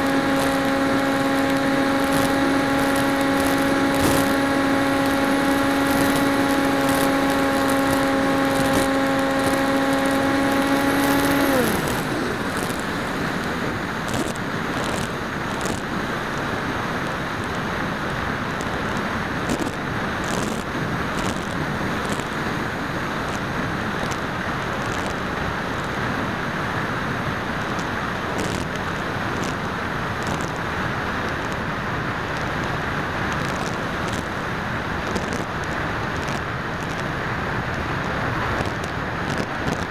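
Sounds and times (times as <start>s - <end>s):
electric motor and propeller whining: 0.0s - 16.6s
air rushing over microphone: 0.0s - 26.3s
light ticks: 38.6s - 39.9s.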